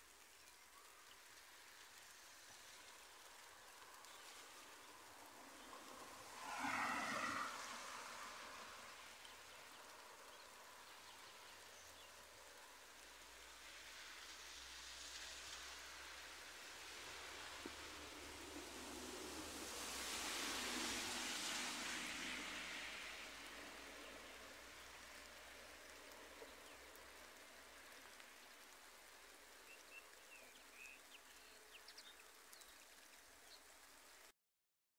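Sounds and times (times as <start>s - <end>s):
light rain falling: 0.0s - 34.3s.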